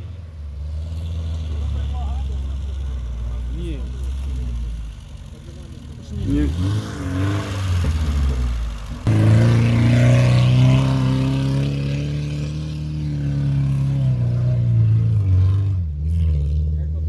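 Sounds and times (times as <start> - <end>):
car engine revving hard: 6.0 - 17.0.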